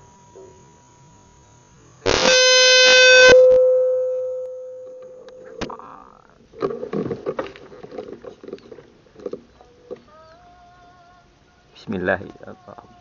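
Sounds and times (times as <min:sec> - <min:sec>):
horn-like tone: 0:02.1 - 0:05.3.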